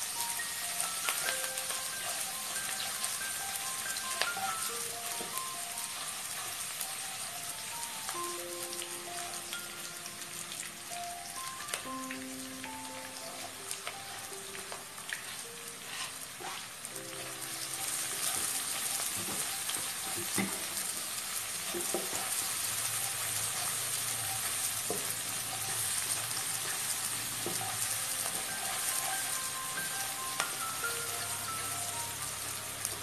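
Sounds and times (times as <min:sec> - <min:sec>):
vegetables sizzling in hot oil: 0:00.0 - 0:33.0
spatula scraping a pan: 0:15.3 - 0:16.9.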